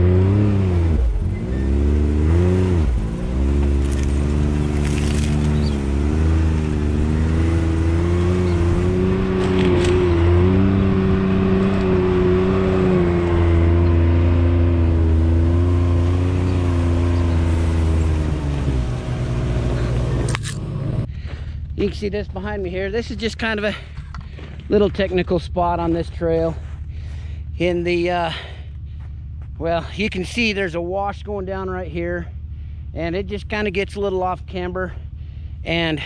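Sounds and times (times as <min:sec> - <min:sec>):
engine revving: 0:00.0 - 0:34.1
brush scraping against vehicle: 0:03.5 - 0:05.9.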